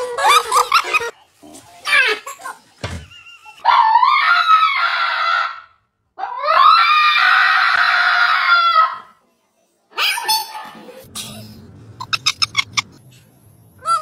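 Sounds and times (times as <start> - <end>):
dog screaming cries: 3.6 - 9.1.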